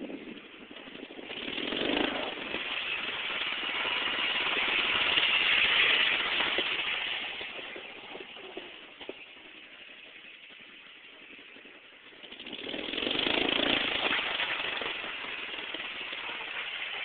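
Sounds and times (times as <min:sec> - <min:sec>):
riding lawnmower engine passing: 0:00.0 - 0:17.0.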